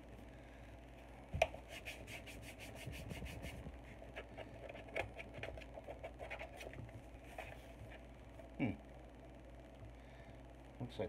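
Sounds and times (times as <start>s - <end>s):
tissue rubbing on plastic: 1.6s - 4.3s.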